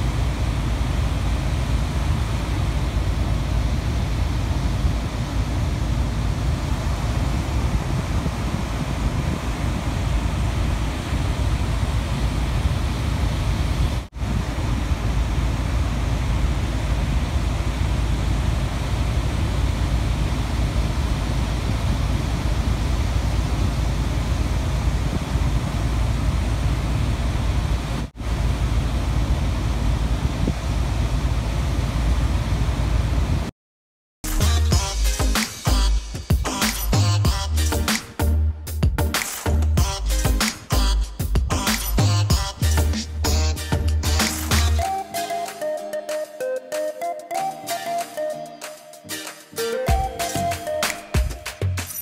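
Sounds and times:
wind rumbling on microphone: 0.0s - 33.5s.

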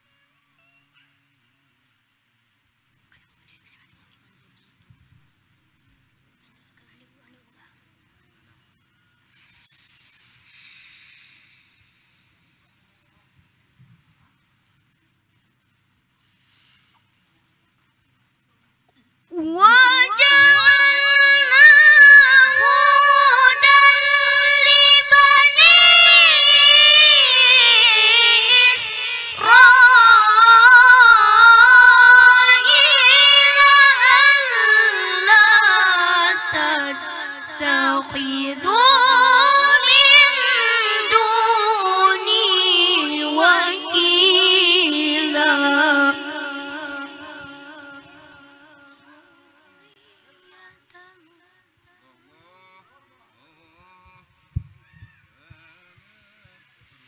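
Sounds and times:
boy reciting melodically: 19.3s - 49.3s.

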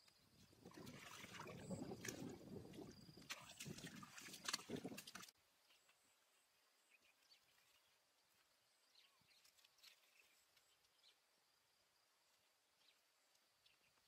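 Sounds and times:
soft high ticks and chirps: 4.5s - 14.0s.

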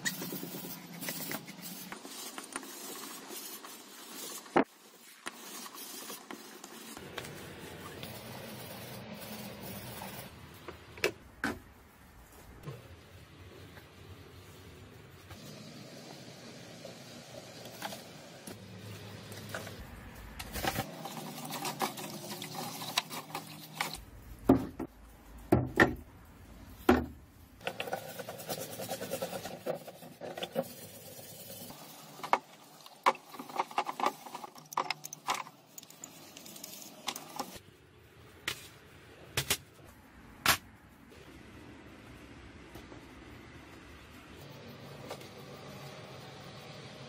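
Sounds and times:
stiff brush scrubbing metal: 20.8s - 24.0s.

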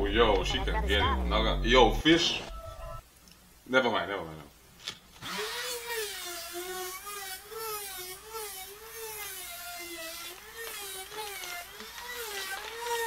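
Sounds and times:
electric power tool whining: 5.2s - 13.0s.

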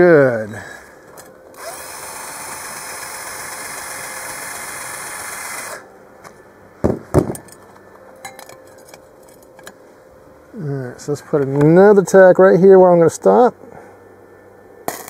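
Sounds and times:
sharp knocks: 6.8s - 7.4s.

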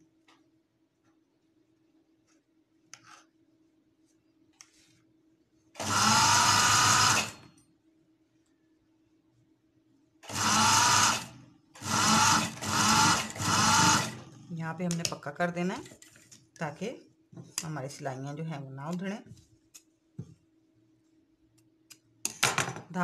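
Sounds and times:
sewing machine stitching: 5.8s - 7.4s, 10.2s - 14.3s.

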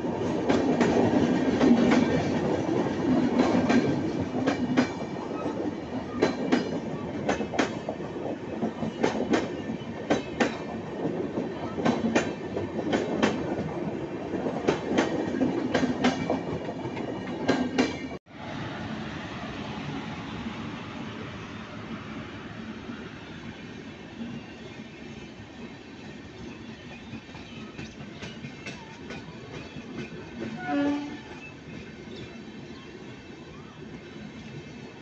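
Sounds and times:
train coaches rumbling past: 0.0s - 35.0s
wheels clacking over rail joints: 0.4s - 13.8s.

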